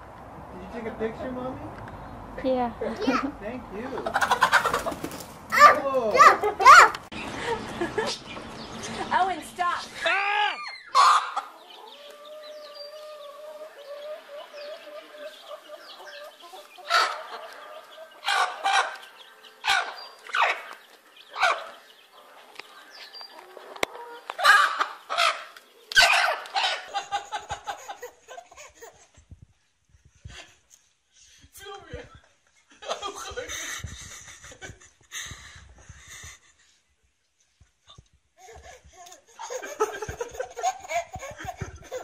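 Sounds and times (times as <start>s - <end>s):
hens clucking: 2.8s - 6.0s, 10.9s - 29.2s, 38.6s - 42.0s.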